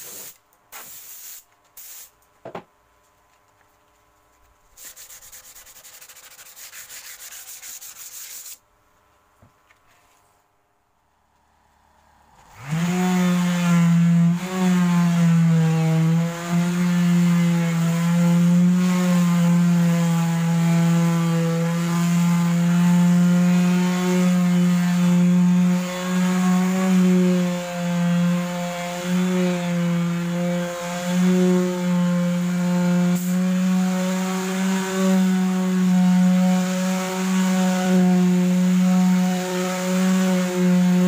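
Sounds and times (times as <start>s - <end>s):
electric sander on plywood: 4.8s - 8.6s, 12.3s - 41.0s.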